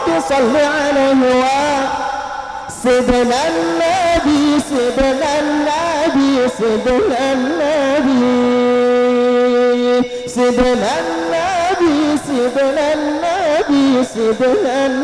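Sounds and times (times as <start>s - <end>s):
man reciting in ornamented song: 0.0s - 15.0s.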